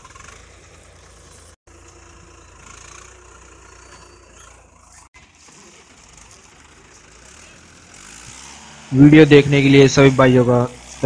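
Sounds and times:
tractor diesel engines running: 0.0s - 11.0s.

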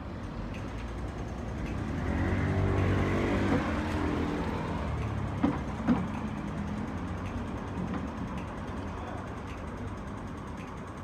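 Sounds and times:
hum of traffic: 0.0s - 11.0s
car passing close by: 1.9s - 4.9s.

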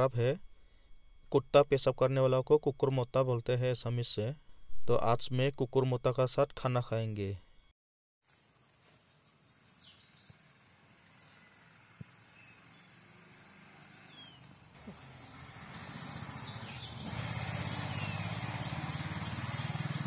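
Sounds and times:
birds chirping: 9.0s - 20.0s.

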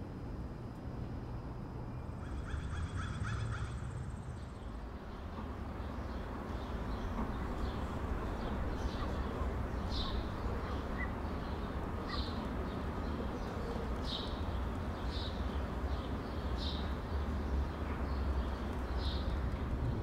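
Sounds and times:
small bird chirping: 6.1s - 15.4s.

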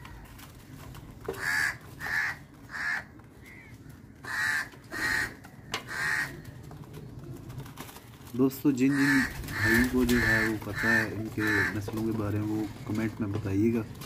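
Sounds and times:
crow cawing: 1.3s - 6.5s, 8.9s - 12.0s.

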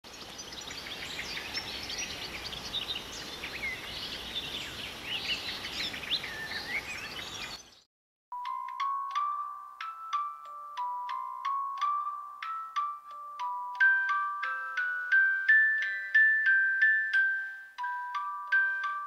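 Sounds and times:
birds chirping and singing: 0.1s - 7.8s
steady outdoor hiss: 0.1s - 7.8s, 8.8s - 18.9s.

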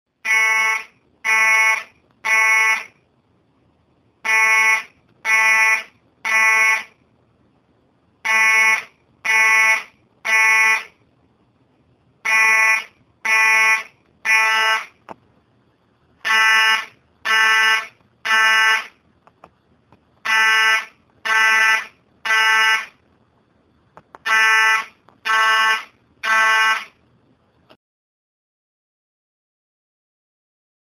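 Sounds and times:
buzzy fire alarm horn: 0.2s - 3.0s, 4.2s - 7.0s, 8.2s - 10.9s, 12.2s - 15.0s, 16.2s - 19.0s, 20.3s - 23.0s, 24.3s - 27.0s.

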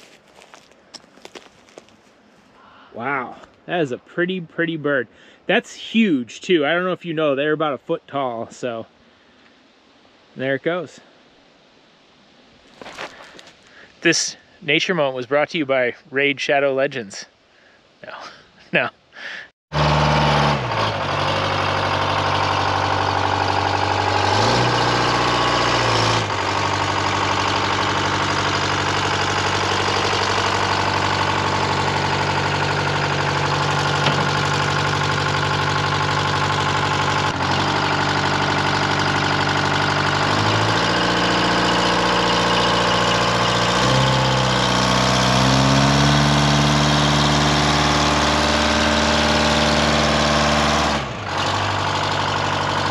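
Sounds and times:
diesel engine running: 19.7s - 52.9s.

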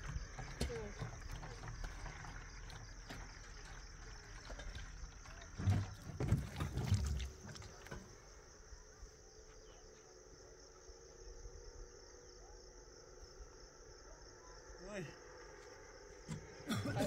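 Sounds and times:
dull thumps and knocks: 0.0s - 8.2s
crickets chirring: 0.0s - 17.0s.

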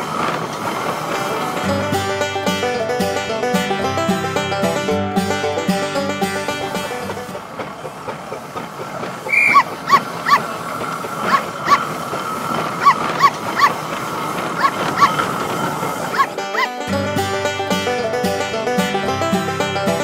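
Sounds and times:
steam engine hissing and rumbling: 0.0s - 20.0s
dog barking: 9.4s - 10.5s, 11.2s - 11.9s, 12.8s - 13.8s, 14.6s - 15.2s, 16.1s - 16.8s.

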